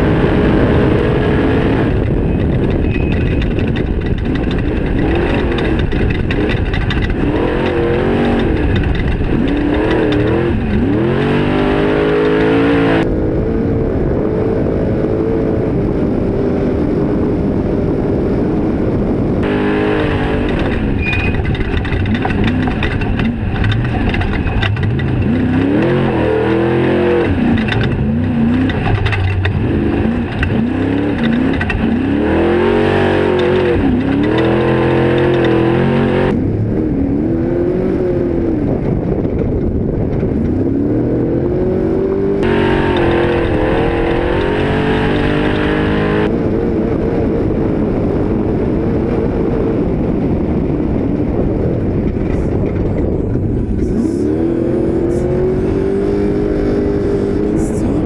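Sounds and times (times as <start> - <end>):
truck engine revving hard: 0.0 - 13.4, 19.4 - 39.1, 39.9 - 47.0, 52.5 - 58.0.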